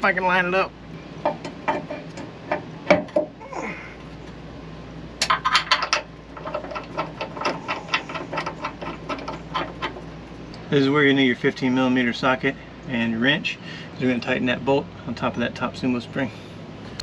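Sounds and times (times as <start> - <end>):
steady low hum: 0.0 - 17.0
metal clicks and knocks: 1.2 - 3.4, 5.2 - 10.6.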